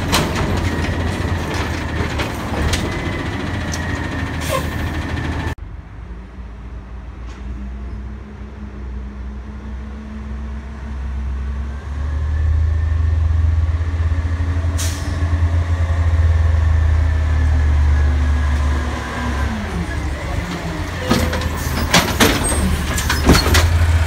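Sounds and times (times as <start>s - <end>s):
garbage truck engine: 0.0s - 24.0s
air brakes hissing: 3.7s - 5.0s, 14.8s - 15.4s.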